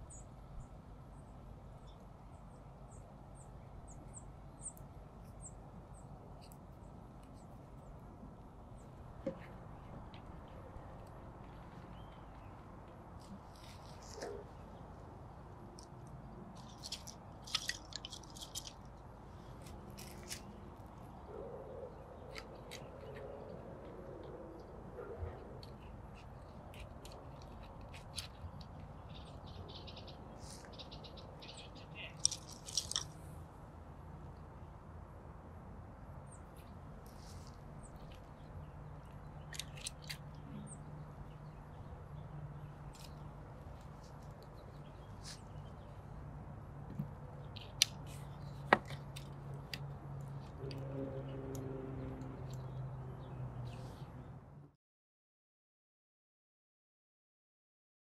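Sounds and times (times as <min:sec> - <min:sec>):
wooden strips clicking and rustling: 0:16.6 - 0:18.9, 0:32.2 - 0:33.2
wooden clicks and scrapes: 0:32.2 - 0:33.2.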